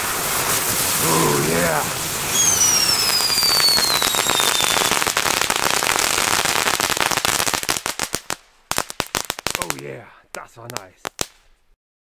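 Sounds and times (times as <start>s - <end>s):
fireworks crackling and popping: 0.0s - 11.8s
firework whistle falling in pitch: 2.2s - 4.9s.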